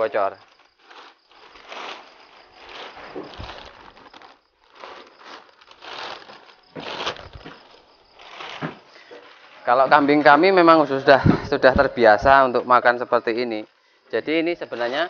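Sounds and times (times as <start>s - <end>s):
plastic sack crinkling: 0.0s - 10.7s
dull thumps: 6.1s - 8.9s, 11.1s - 12.4s.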